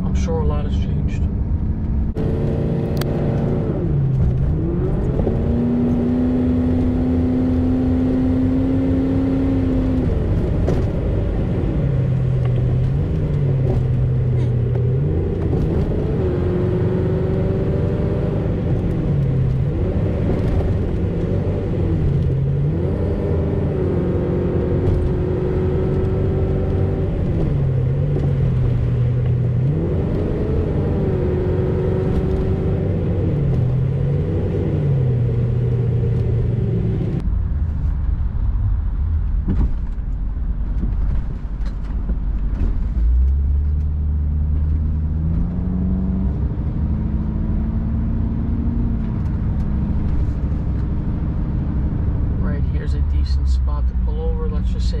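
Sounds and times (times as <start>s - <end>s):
road noise inside cab: 0.0s - 55.0s
truck engine revving: 1.1s - 37.2s.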